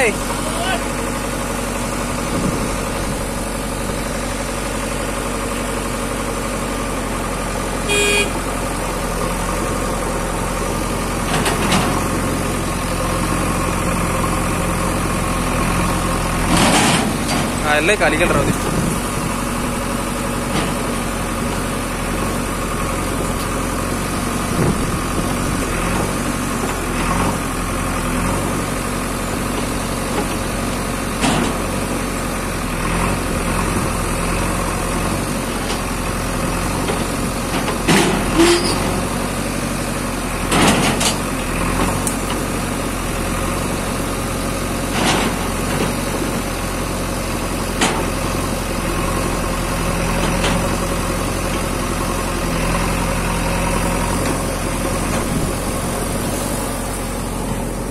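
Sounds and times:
diesel engine running: 0:00.0 - 0:57.9.

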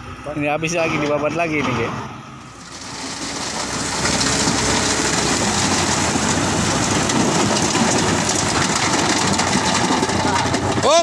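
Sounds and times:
truck engine running: 0:02.4 - 0:11.0
broken stone clattering from truck: 0:02.6 - 0:11.0.

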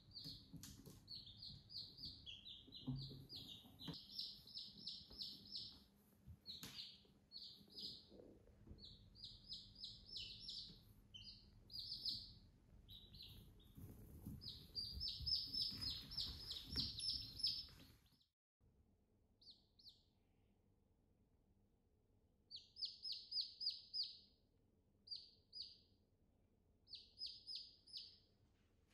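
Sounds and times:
chicks peeping: 0:00.0 - 0:18.2, 0:19.4 - 0:20.0, 0:22.5 - 0:24.3, 0:25.1 - 0:25.9, 0:26.9 - 0:28.3.

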